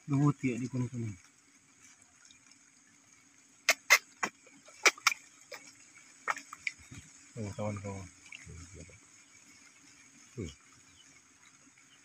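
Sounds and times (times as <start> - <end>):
fish splashing at water surface: 3.6 - 7.1.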